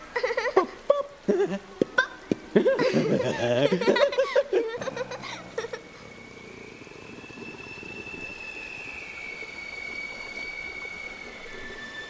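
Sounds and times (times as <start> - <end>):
clown laughing: 0.1 - 6.0.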